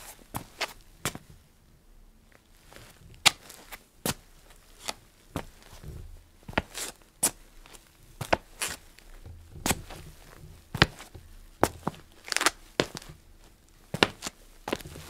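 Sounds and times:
shuffling scuff of feet: 2.7 - 13.2, 13.9 - 15.0
feet tapping and stamping on floor: 5.4 - 13.2, 13.9 - 15.0.

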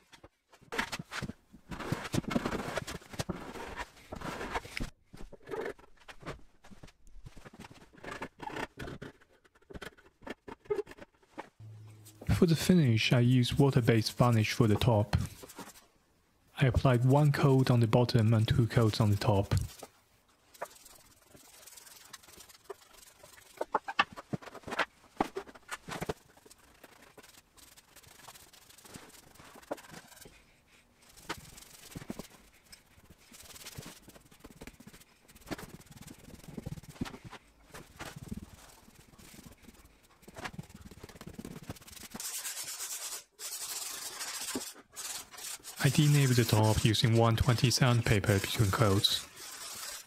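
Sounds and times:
brush strokes on wood: 20.5 - 23.6, 41.8 - 50.0
hand sanding rasp: 20.5 - 23.6, 40.9 - 50.0.

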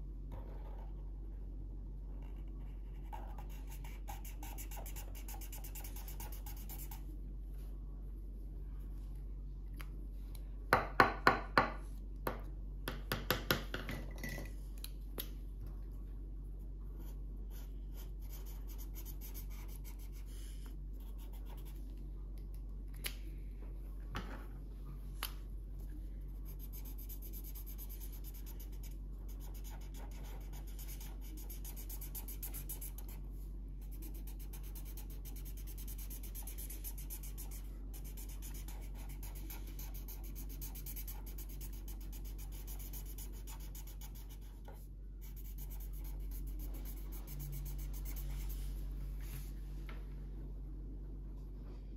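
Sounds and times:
marker and pencil scratching paper: 2.2 - 7.1, 17.0 - 21.8, 26.4 - 33.2, 33.8 - 48.8.

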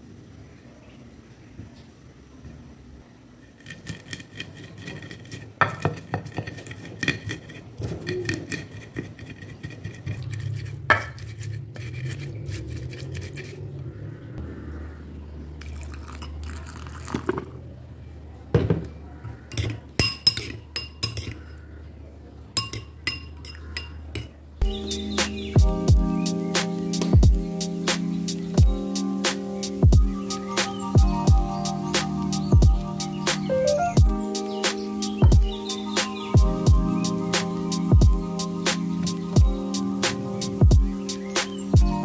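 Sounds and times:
metal spoon clinking glass bowl: 3.6 - 10.2, 19.5 - 21.6, 22.6 - 24.4
stone pestle knocking and scraping: 3.6 - 13.5.

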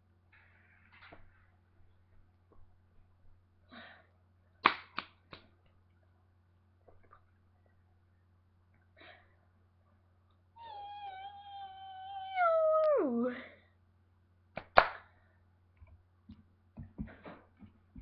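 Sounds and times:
child squealing: 10.6 - 13.3.

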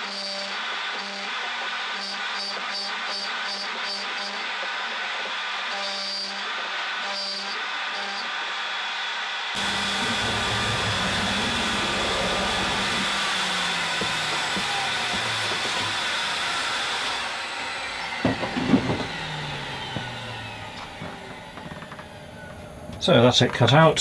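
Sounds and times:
vacuum cleaner running: 4.4 - 23.4.

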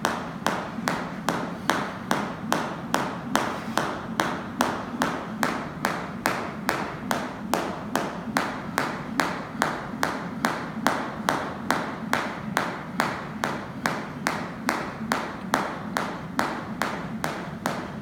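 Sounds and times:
jump rope slapping rubber floor: 0.0 - 18.0.

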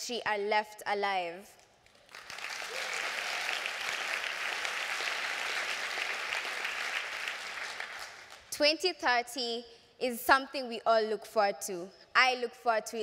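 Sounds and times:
audience applauding: 2.0 - 8.5.

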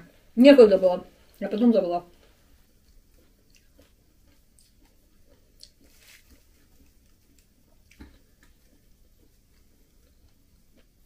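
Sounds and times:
chewing and mouth sounds: 2.2 - 11.0.

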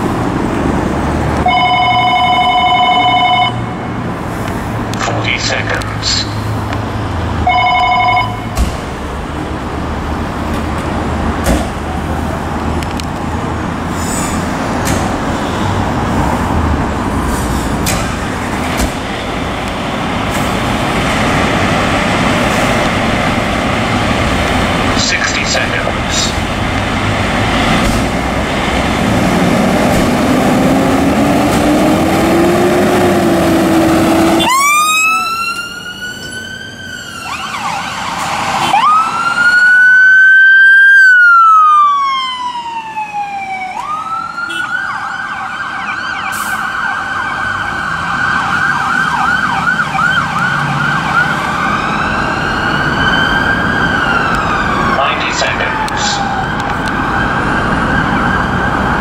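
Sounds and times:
diesel engines pulling away: 0.0 - 59.0
siren yelp: 1.4 - 3.8, 7.4 - 8.5, 34.3 - 59.0
siren wailing: 1.4 - 3.9, 31.9 - 59.0.

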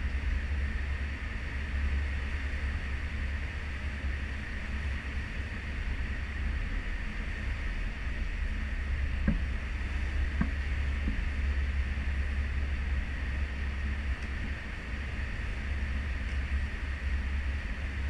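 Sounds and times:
churning wake: 0.0 - 18.0
ship engine low rumble: 0.0 - 18.0.

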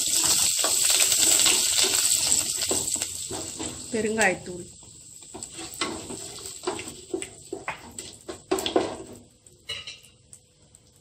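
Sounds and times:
wooden spatula scraping pot: 0.0 - 4.0, 5.3 - 9.2
spices sizzling in hot oil: 0.0 - 11.0.

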